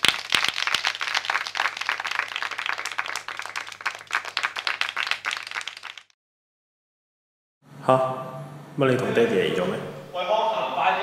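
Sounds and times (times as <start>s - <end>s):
people clapping: 0.0s - 6.2s.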